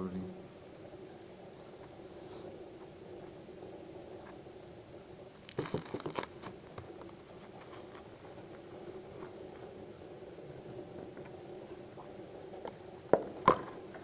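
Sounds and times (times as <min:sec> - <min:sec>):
faint steady hum: 0:00.0 - 0:14.0
cling film crinkling: 0:05.2 - 0:09.8.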